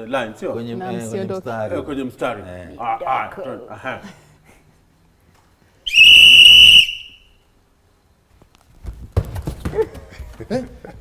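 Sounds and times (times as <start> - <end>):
referee's whistle blast: 5.9 - 7.4
knocks: 8.8 - 10.4.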